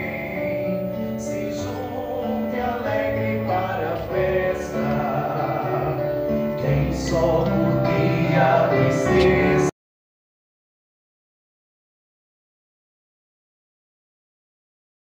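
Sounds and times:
group singing a hymn: 0:00.0 - 0:09.7.

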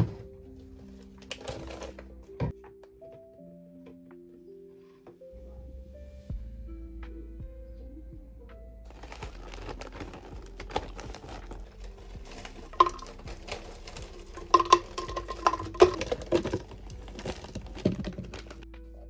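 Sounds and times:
plastic bag crinkling: 0:01.2 - 0:02.1, 0:08.9 - 0:18.6
frozen fruit knocking into blender: 0:12.2 - 0:18.6.

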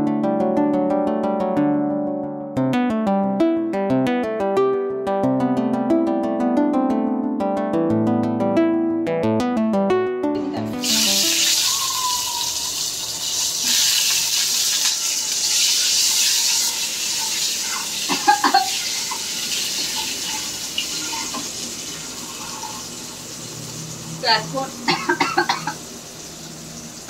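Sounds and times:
eggs sizzling in hot oil: 0:10.8 - 0:27.0.

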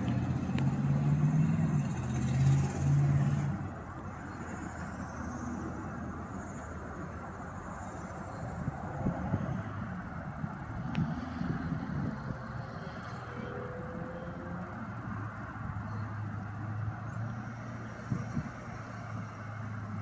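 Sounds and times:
freight train rumbling: 0:00.0 - 0:04.8.

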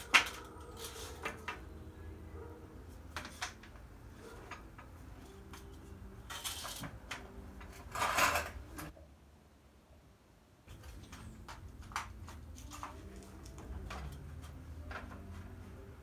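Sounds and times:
light handling clicks and knocks: 0:10.7 - 0:15.6.

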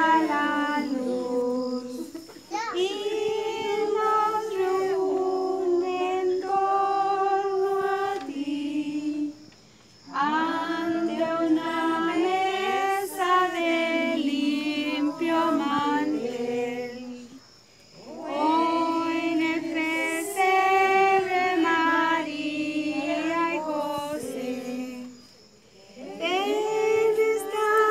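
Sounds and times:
group of voices singing: 0:00.0 - 0:27.9.

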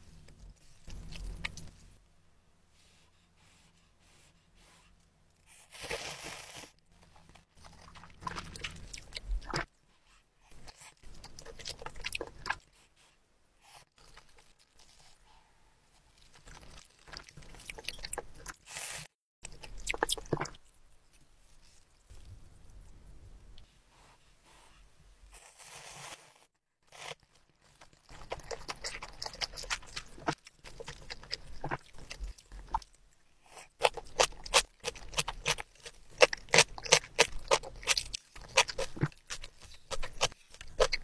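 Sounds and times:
wet chewing: 0:00.1 - 0:01.9, 0:07.1 - 0:09.7, 0:10.5 - 0:12.7, 0:16.1 - 0:18.6, 0:19.4 - 0:23.0, 0:26.9 - 0:41.0.

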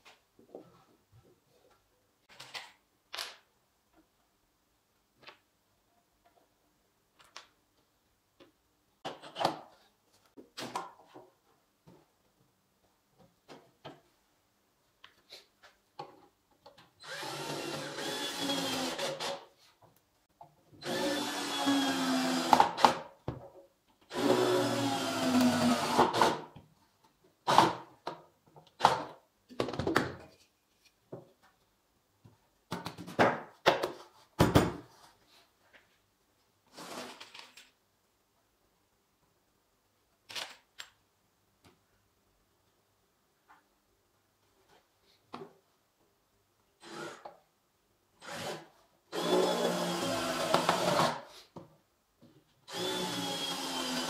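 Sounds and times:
cordless drill driving screws: 0:17.0 - 0:19.4, 0:20.8 - 0:23.0, 0:24.1 - 0:26.4, 0:48.2 - 0:51.2, 0:52.7 - 0:54.0.

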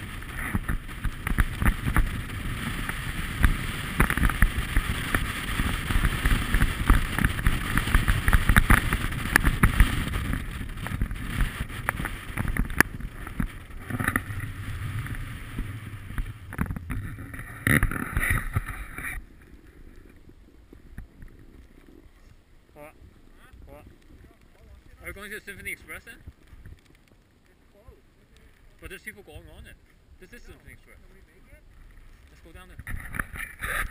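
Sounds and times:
snowboard scraping on snow: 0:00.0 - 0:22.2
wind buffeting microphone: 0:00.0 - 0:26.9.

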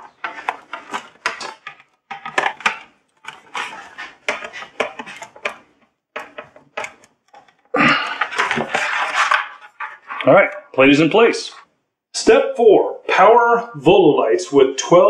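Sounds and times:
rustling handling noise: 0:00.0 - 0:10.8.

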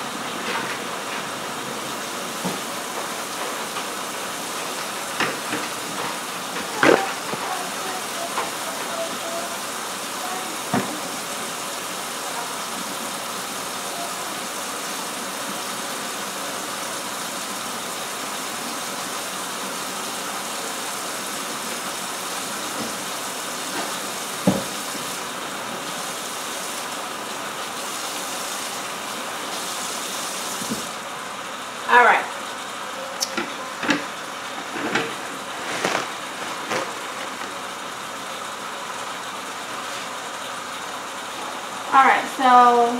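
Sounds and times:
hands under running water: 0:00.0 - 0:31.1, 0:33.3 - 0:41.6
tap running into metal sink: 0:23.7 - 0:24.8.

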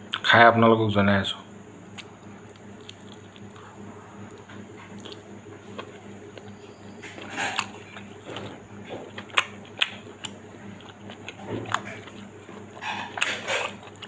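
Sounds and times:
low steady hum: 0:00.0 - 0:14.0
person chewing meat: 0:01.9 - 0:14.0.

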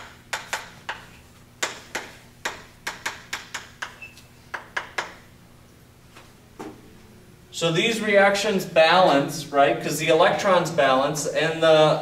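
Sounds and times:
chalk tapping on blackboard: 0:00.0 - 0:05.2.

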